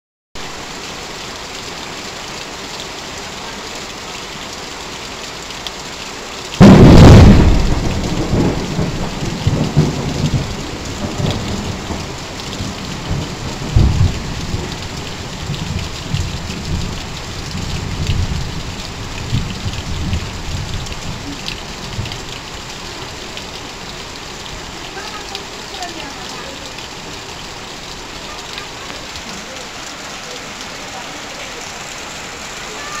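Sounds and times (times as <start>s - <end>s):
heavy rain on metal roofs: 0.4s - 33.0s
water pouring off roof: 0.4s - 33.0s
thunder rumbling: 6.6s - 22.1s.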